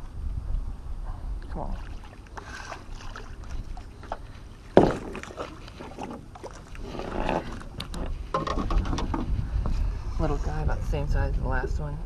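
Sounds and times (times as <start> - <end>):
steady low rumble: 0.0 - 12.0
knocks and rustling: 7.0 - 9.7.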